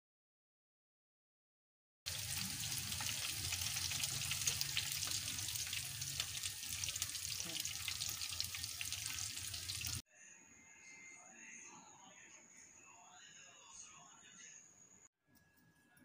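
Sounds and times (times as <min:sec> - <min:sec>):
chicken deep-frying in oil: 0:02.1 - 0:10.0.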